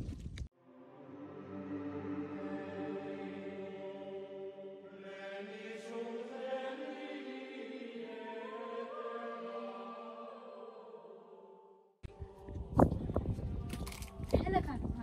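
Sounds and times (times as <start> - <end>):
slow chanting: 0.9 - 14.2.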